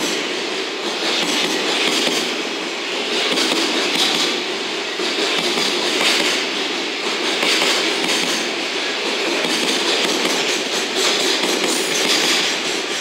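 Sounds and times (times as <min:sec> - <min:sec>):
wheel-on-rail rushing noise: 0:00.0 - 0:13.0
wheels clattering over rail joints: 0:03.0 - 0:13.0.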